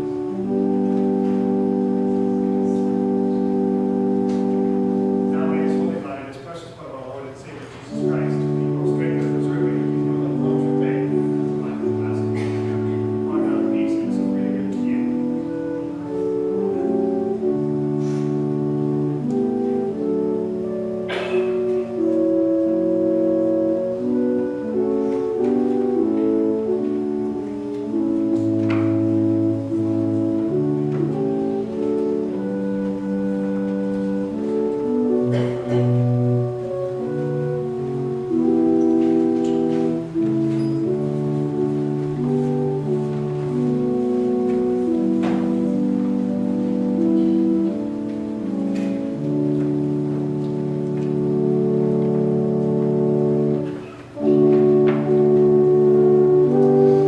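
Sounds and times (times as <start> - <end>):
organ music: 0.0 - 57.0.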